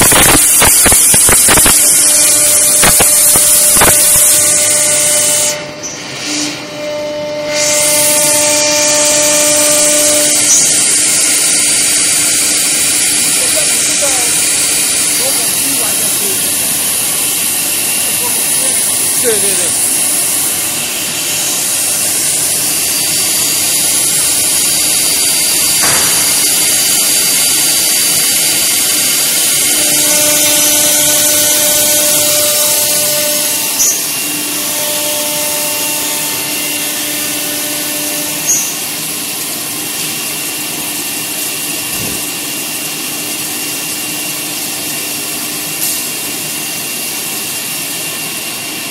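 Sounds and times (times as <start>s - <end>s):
router spindle whining: 7.6s - 39.0s.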